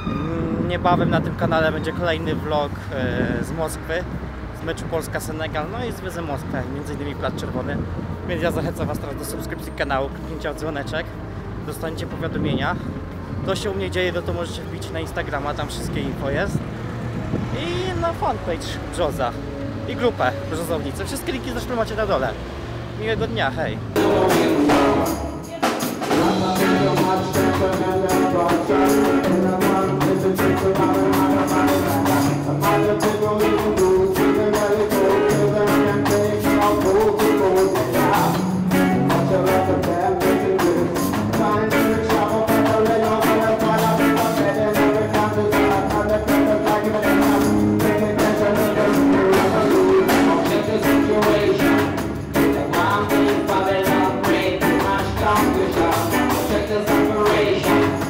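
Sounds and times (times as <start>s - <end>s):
electric bass: 0.0s - 58.0s
drum kit beat: 24.0s - 58.0s
electric guitar: 24.0s - 58.0s.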